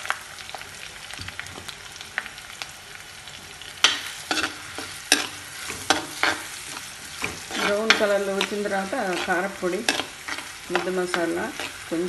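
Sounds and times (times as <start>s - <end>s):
onions sizzling in hot oil: 0.0s - 12.0s
spoon scraping a clay pot: 4.4s - 11.9s.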